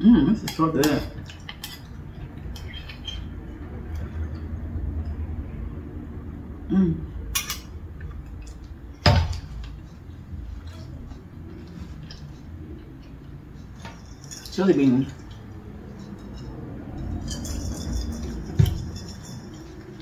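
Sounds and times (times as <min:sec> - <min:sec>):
metal spoon scraping in mug: 0:13.5 - 0:20.0.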